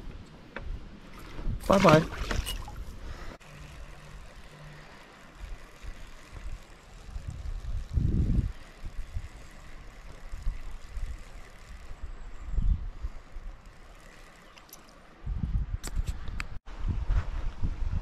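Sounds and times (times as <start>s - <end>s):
wind buffeting microphone: 5.4s - 13.7s, 15.2s - 18.0s.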